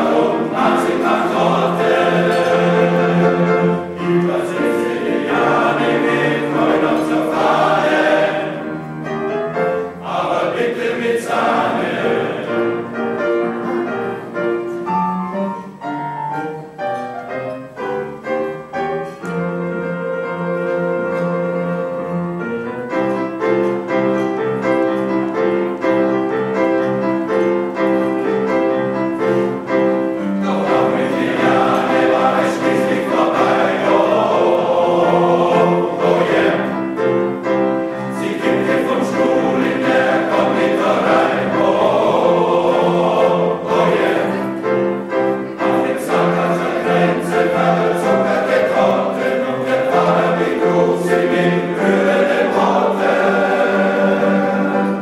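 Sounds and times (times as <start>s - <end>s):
male choir singing: 0.0s - 14.1s, 30.2s - 55.0s
piano accompaniment: 0.0s - 55.0s.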